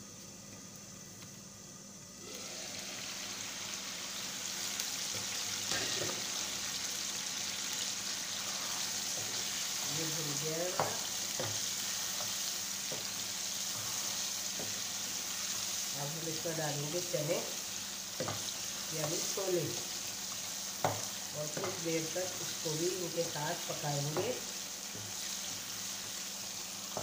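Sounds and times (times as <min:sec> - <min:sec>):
food sizzling in a pan: 0:00.0 - 0:27.0
wooden spoon knocking on pan: 0:10.6 - 0:13.2, 0:18.2 - 0:19.2, 0:20.8 - 0:21.9.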